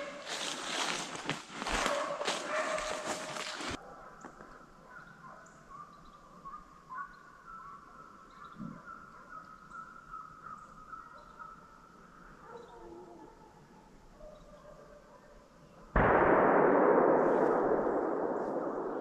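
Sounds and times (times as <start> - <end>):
distant animal calls chorus: 3.8 - 15.4.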